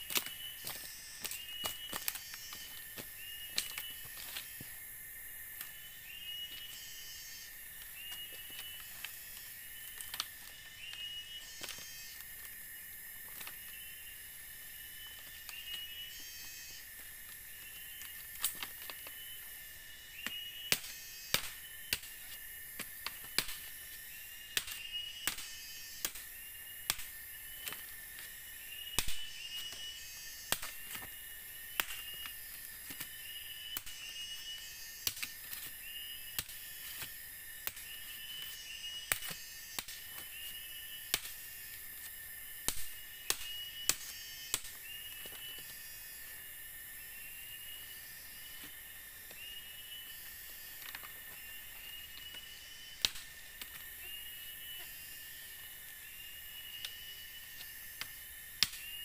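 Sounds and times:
insect drone: 0.0 - 59.0
machete splitting bamboo: 24.5 - 27.8.

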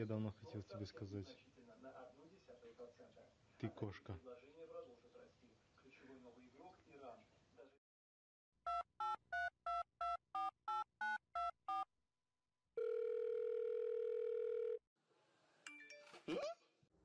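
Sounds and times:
telephone keypad beeps: 8.7 - 11.8
steady phone tone: 12.8 - 14.8.

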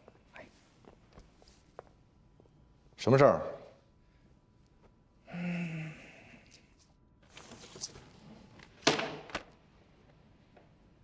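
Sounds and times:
folder thunk on desk: 8.8 - 9.5.

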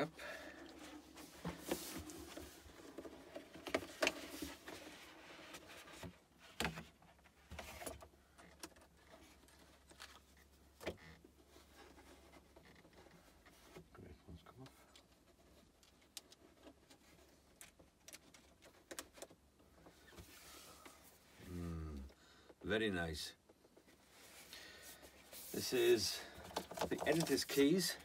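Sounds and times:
cardboard packaging rustling: 0.6 - 6.2, 25.2 - 28.0.

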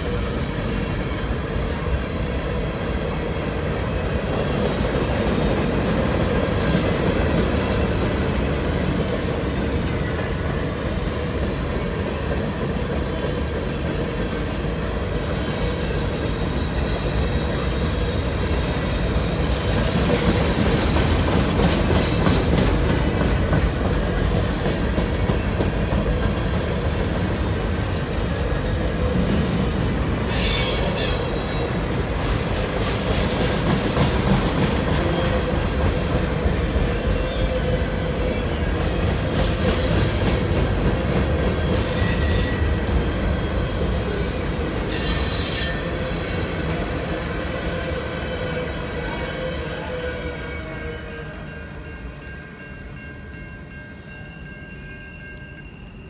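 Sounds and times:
train wheels rumbling on rail: 0.0 - 56.0
high-pitched wheel squeals: 30.3 - 31.8, 44.9 - 46.2.

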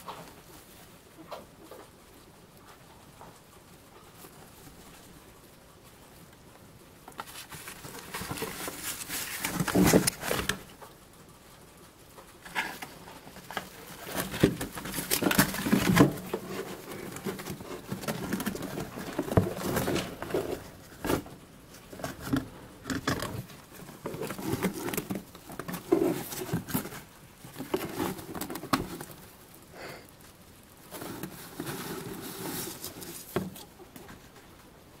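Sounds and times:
rustling in wood shavings: 7.0 - 11.0, 11.9 - 22.7, 23.3 - 34.8
cardboard tube knocking and scraping: 7.1 - 10.7, 12.4 - 29.2, 30.9 - 34.2.

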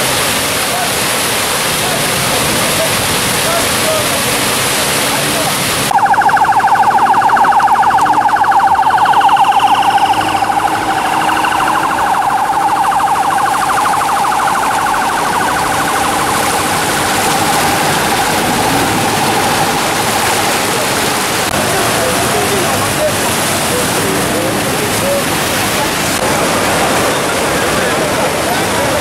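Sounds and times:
floodwater rushing out of a culvert: 0.0 - 29.0
vehicles driving through floodwater: 0.0 - 29.0
police siren warbling: 5.9 - 21.6.

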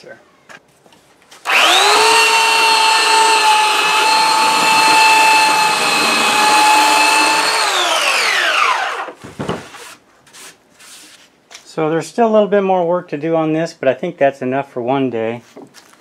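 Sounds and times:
belt sander sanding wood: 1.5 - 9.1
motor whine spinning down: 1.5 - 9.1.

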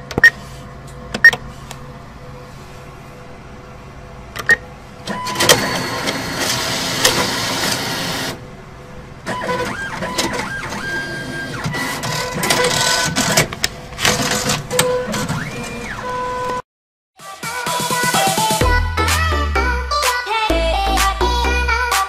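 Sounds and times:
banknote machine whirring and rattling: 5.0 - 8.4, 9.2 - 16.1.

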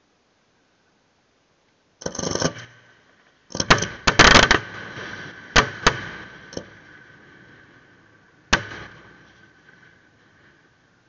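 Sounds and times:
fireworks bangs and crackles: 3.5 - 10.7.

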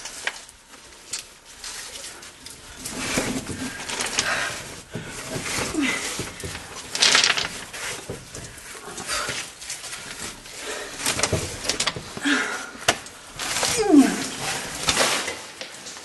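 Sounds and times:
person grunting and breathing: 4.2 - 6.3, 12.2 - 12.9.

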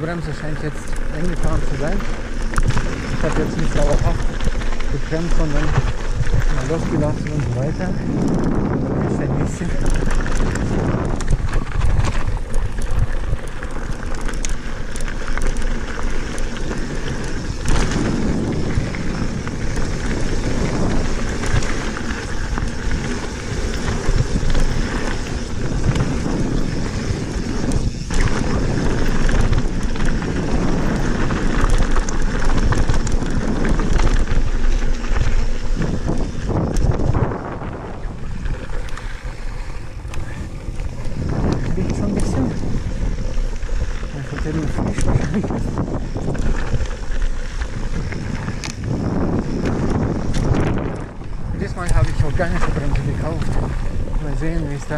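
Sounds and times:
bike rattling clicks and knocks: 0.0 - 54.9
tyres rolling over gravel: 0.0 - 54.9
wind buffeting microphone: 0.0 - 54.9.

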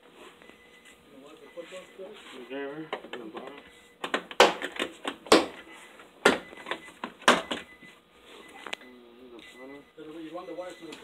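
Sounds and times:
sharp knocks: 4.1 - 5.6.

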